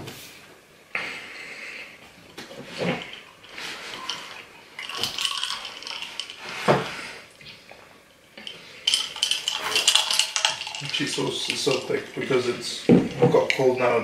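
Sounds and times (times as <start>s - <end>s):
glass jar clinking: 2.7s - 7.0s, 8.4s - 13.8s.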